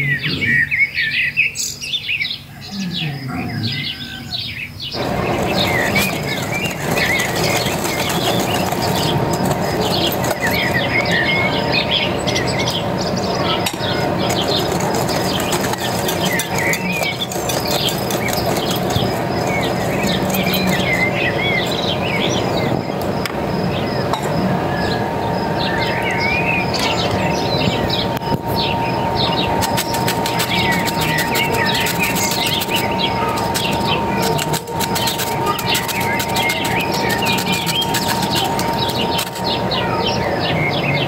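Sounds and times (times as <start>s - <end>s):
birdsong with quick chirps: 0.0s - 41.0s
wire whisk scraping glass bowl: 5.0s - 11.3s, 13.7s - 22.0s, 29.6s - 39.6s.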